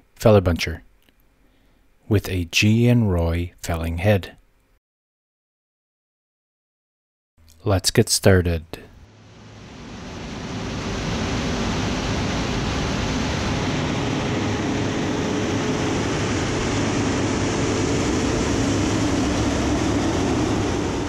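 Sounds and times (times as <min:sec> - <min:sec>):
heavy machine saw disc whirring: 0:09.2 - 0:21.0.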